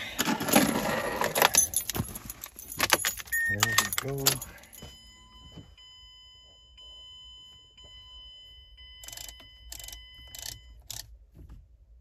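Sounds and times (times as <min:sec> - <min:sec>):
keys jangling: 0:01.4 - 0:04.8
car electronic warning tone: 0:03.3 - 0:11.0.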